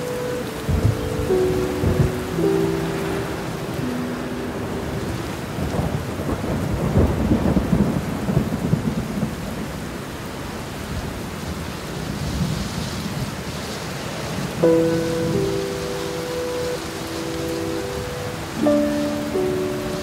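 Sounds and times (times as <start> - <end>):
rolling thunder: 0.0 - 10.0
storm rain: 0.0 - 20.0.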